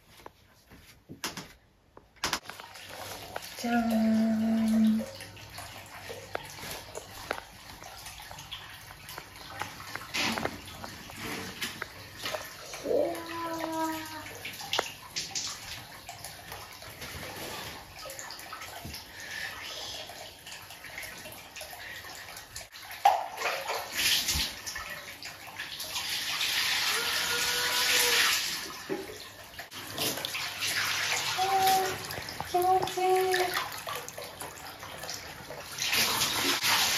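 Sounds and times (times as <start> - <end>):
water poured out with rush: 2.4 - 36.9
water trickling from spout: 2.4 - 36.9
bucket splash in tub: 9.1 - 12.7, 22.8 - 24.9, 26.0 - 34.4, 35.1 - 36.9.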